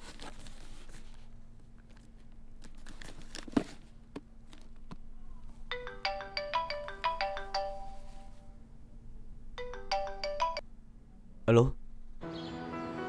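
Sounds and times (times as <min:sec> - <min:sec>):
mobile phone ringtone: 0:05.7 - 0:08.6, 0:09.6 - 0:10.6.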